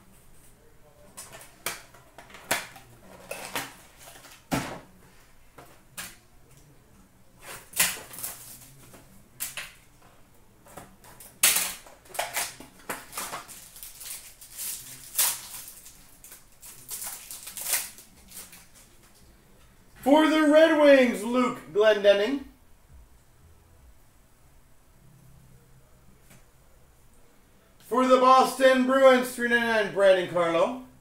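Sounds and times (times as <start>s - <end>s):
card packs crinkling and clicking: 7.5s - 9.8s, 10.7s - 19.2s.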